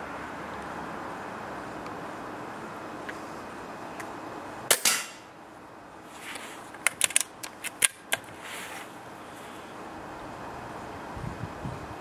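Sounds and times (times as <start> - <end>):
metallic clicks of rifle cocking: 6.8 - 8.2.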